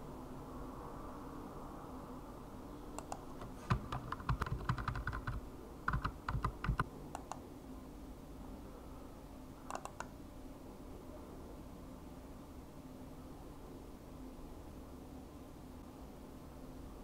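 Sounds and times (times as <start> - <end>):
steady low hiss: 0.0 - 17.0
computer keys clicking: 3.0 - 7.4, 9.7 - 10.2.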